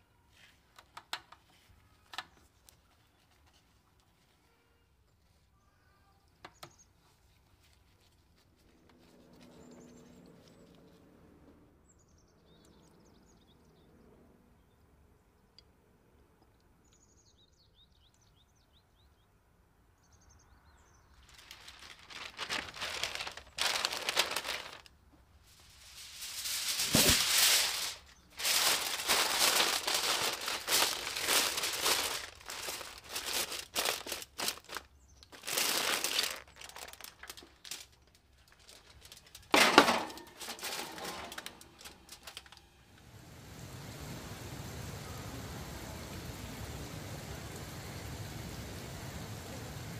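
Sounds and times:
paper and foil crinkling: 7.0 - 9.7, 21.2 - 42.7.

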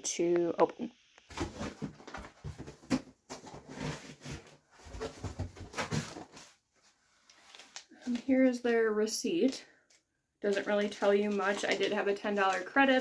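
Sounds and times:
cardboard box rustling and crinkling: 1.3 - 6.6.

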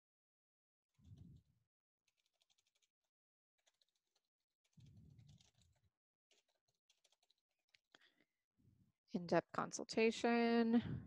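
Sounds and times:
keyboard typing: 4.8 - 7.3.

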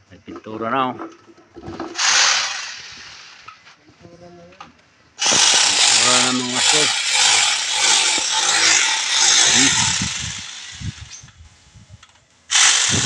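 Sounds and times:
paint spray gun hissing: 5.2 - 11.3.

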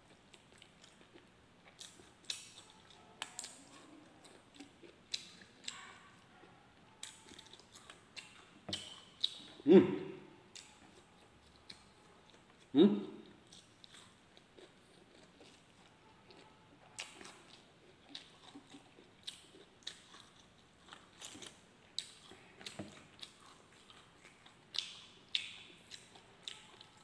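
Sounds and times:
chewing and lip-smacking: 0.1 - 9.6, 10.5 - 27.0
wet mouth clicks: 24.3 - 26.6.

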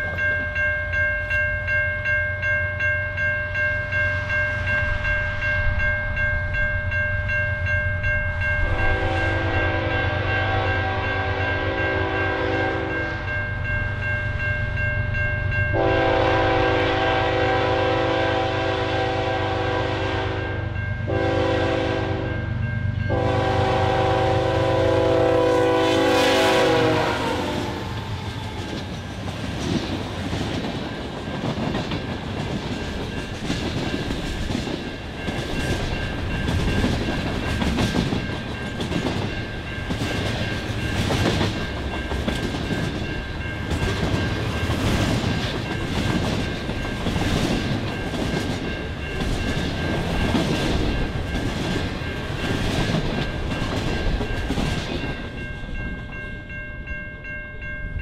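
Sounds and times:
locomotive air horn blowing: 8.7 - 13.1, 15.8 - 22.4, 23.1 - 28.0
train wheels clacking over rail joints: 27.8 - 55.4.

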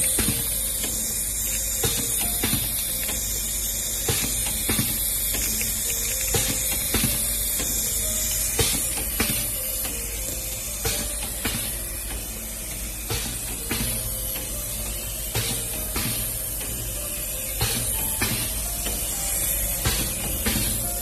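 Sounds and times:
machine hiss and hum: 0.0 - 21.0.

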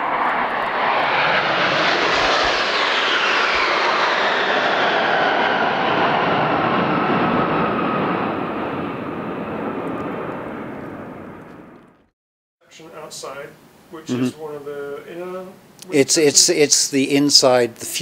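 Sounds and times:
jet aircraft roaring past: 0.0 - 12.1.

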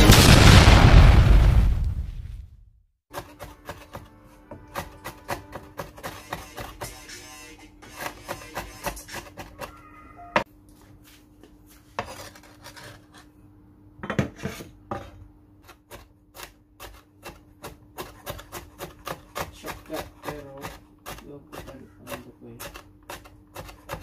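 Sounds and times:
cleaver chopping on wooden board: 3.1 - 7.0, 7.8 - 9.8, 15.8 - 24.0.

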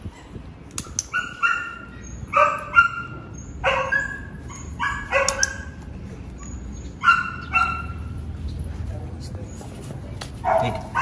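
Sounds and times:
dog whining and yipping: 0.1 - 5.8, 6.4 - 8.1.

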